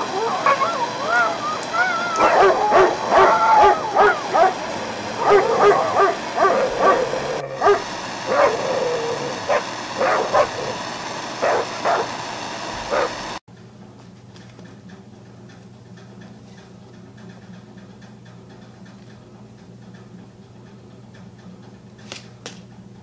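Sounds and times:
dog whining and yipping: 0.0 - 4.6, 5.2 - 10.8, 11.4 - 12.1, 12.9 - 13.2.

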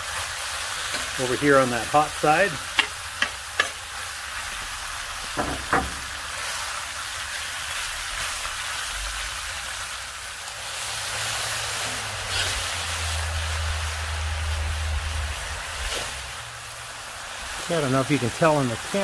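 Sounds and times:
meat and vegetables sizzling: 0.0 - 19.0
metal tongs clicking on wok: 2.7 - 3.8.

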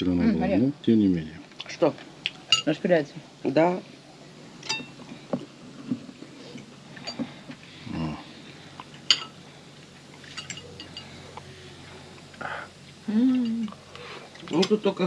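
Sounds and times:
cutlery clinking on plate: 9.1 - 9.4.

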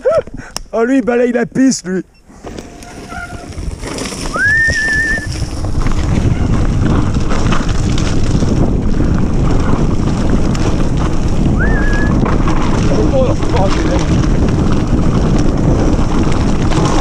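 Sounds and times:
short high squeal: 2.2 - 3.5
bike tyres rushing and rattling: 2.2 - 17.0
wind on microphone: 2.4 - 17.0.

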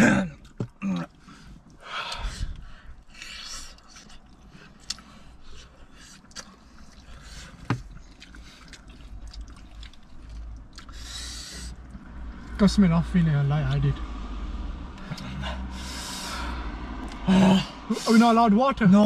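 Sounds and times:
wet chewing and lip-smacking: 0.4 - 12.1, 17.0 - 17.2.

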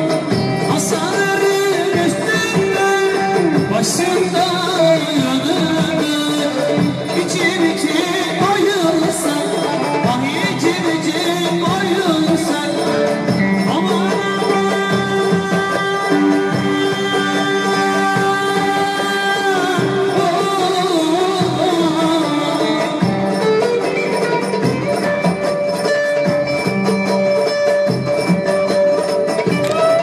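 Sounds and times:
man singing folk song: 0.0 - 23.6
plucked string accompaniment: 0.0 - 30.0.

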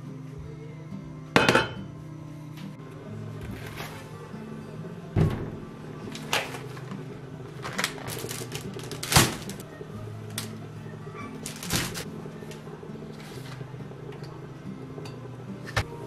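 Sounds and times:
steady low hum: 0.0 - 16.0
groceries knocking on metal counter: 1.4 - 1.8
plastic packaging rustling: 6.1 - 9.6, 11.3 - 12.1.

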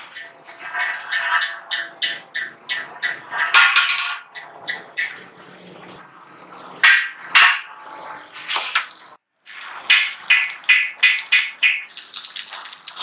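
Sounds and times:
sheet metal knocking and clanking: 0.0 - 5.2, 6.8 - 7.8.

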